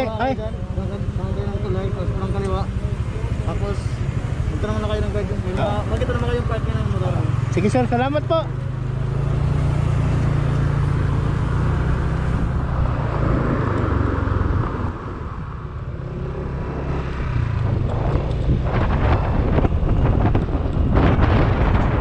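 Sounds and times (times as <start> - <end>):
motorcycle engine: 0.0 - 22.0
wind buffeting microphone: 12.0 - 22.0.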